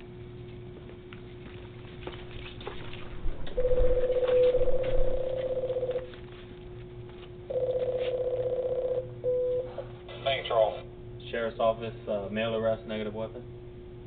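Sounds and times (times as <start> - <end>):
low electrical hum: 0.0 - 14.0
door intercom buzzing ring: 3.6 - 6.1, 7.5 - 9.8.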